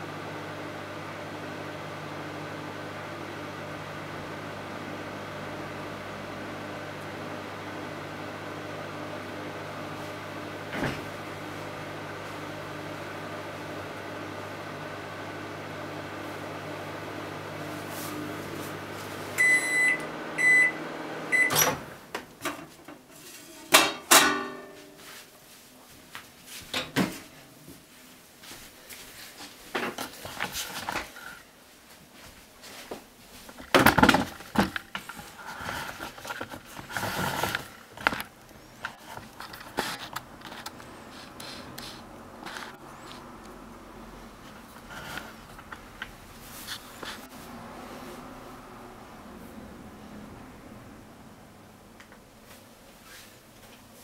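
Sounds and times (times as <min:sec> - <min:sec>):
microwave oven humming: 0:00.0 - 0:22.8, 0:33.6 - 0:52.6
microwave beeps: 0:19.4 - 0:21.8.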